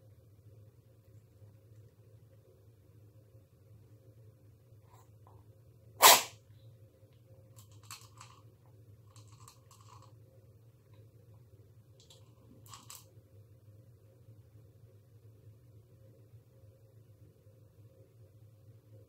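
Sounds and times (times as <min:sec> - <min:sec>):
cat crunching dry food: 0:07.6 - 0:10.2, 0:12.0 - 0:13.1.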